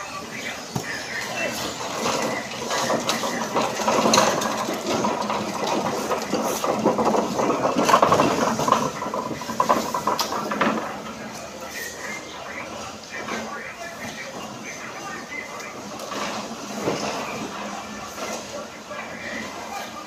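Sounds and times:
cardboard cartons clattering: 0.1s - 20.0s
pallet jack rattling on concrete: 0.9s - 11.8s.

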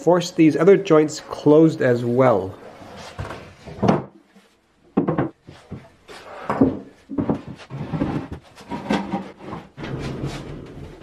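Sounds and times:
wooden knocks and thumps: 3.2s - 4.2s, 4.9s - 9.8s.

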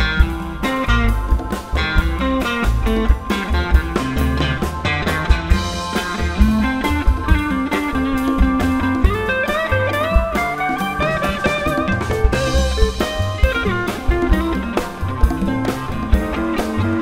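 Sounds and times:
plucked double bass: 0.0s - 9.4s
drum kit: 0.0s - 17.0s
electric guitar lead: 0.0s - 17.0s.

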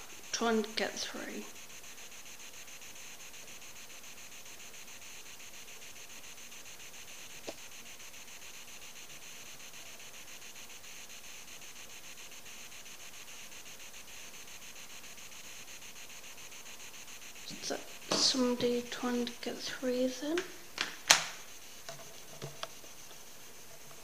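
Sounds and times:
static hiss with flutter: 0.0s - 24.0s.

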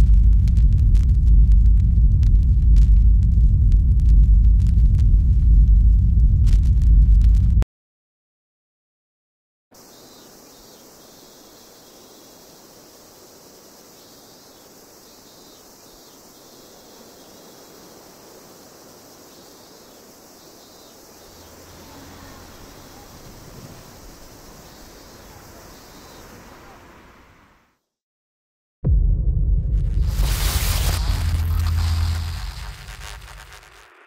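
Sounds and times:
low hum: 0.0s - 7.6s, 28.9s - 33.9s
high-pitched insect chorus: 9.8s - 27.4s, 30.1s - 34.0s.

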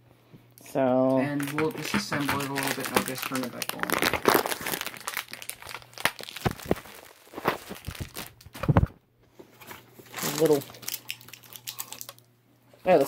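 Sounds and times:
plastic packaging crinkling: 1.2s - 8.9s, 10.0s - 12.3s.

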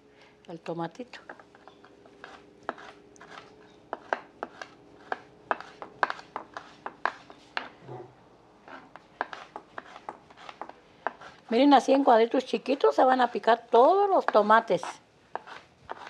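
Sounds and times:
knife chopping on wooden board: 2.2s - 7.7s, 8.7s - 11.4s, 15.3s - 16.0s.

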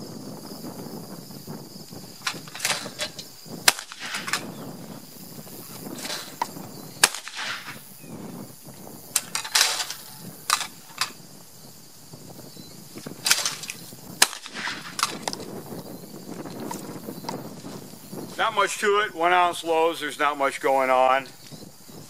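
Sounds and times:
shotgun shots: 2.3s - 4.5s, 7.0s - 7.8s, 9.3s - 10.7s, 13.2s - 15.3s.

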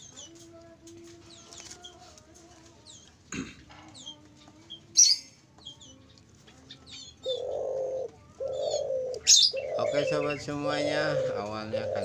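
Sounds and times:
small birds chirping: 0.0s - 12.0s
doves cooing: 6.3s - 12.0s.

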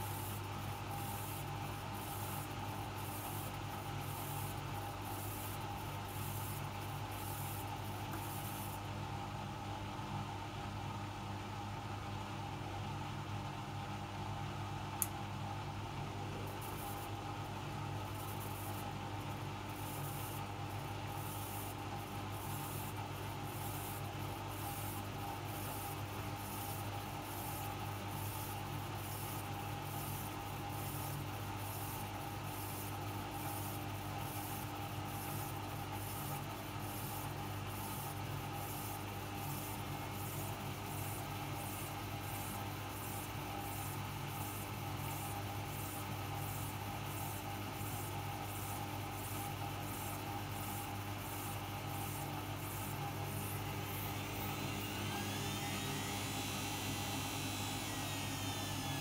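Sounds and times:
washing machine motor hum: 50.7s - 59.0s.

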